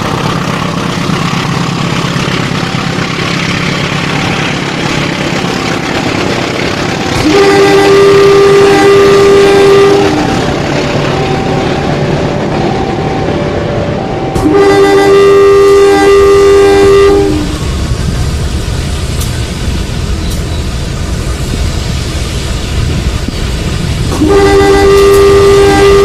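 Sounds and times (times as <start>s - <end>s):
toy train electronic horn: 7.2s - 10.5s, 14.0s - 17.6s, 24.1s - 26.0s.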